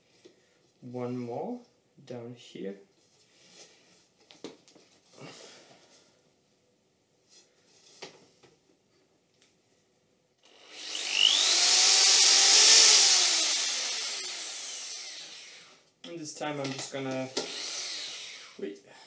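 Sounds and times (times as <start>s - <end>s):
faint handling sounds: 2.9s - 6.2s, 7.2s - 9.9s
electric drill whining: 10.4s - 15.8s, 17.3s - 18.6s.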